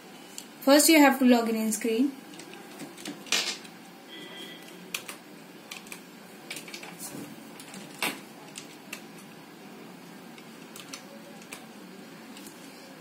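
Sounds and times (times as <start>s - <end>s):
faint high beep: 4.1s - 4.7s.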